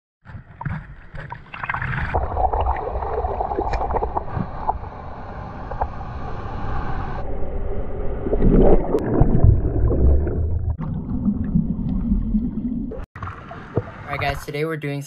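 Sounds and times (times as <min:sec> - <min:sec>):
wave breaking: 0:00.3 - 0:14.4
bubbles popping: 0:01.5 - 0:04.4, 0:08.3 - 0:13.0.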